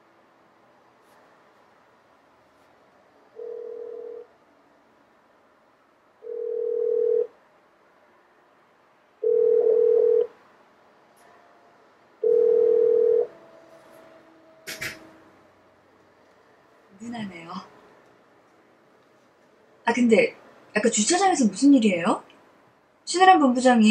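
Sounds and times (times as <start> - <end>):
telephone ringback beeps: 3.4 - 4.2, 6.2 - 7.3, 9.2 - 10.3, 12.2 - 13.3.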